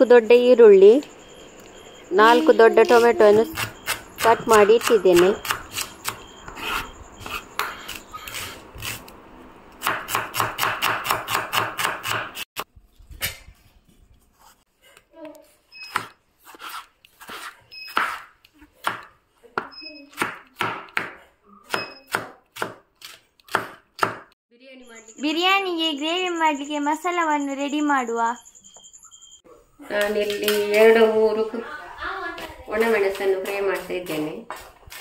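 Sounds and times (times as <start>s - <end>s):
knife chopping on plastic board: 15.9s - 24.3s.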